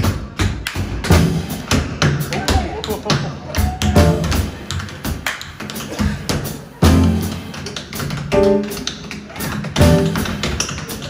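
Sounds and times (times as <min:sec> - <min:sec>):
jazz band drums: 0:00.0 - 0:11.0
tap shoes clicking on stage: 0:01.8 - 0:11.0
upright bass: 0:06.8 - 0:07.4, 0:09.8 - 0:10.2.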